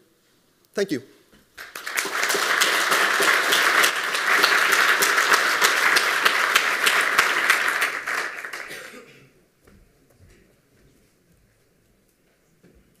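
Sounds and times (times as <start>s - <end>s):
audience applauding: 1.6s - 8.9s.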